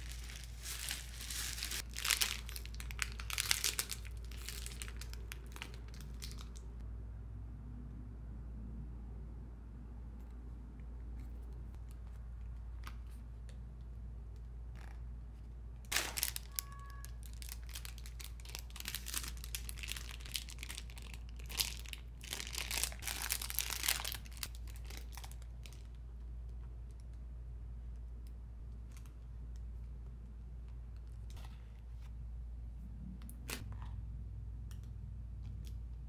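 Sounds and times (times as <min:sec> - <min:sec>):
plastic bags crinkling: 0:00.0 - 0:06.6, 0:15.9 - 0:25.9
steady low hum: 0:17.4 - 0:36.0.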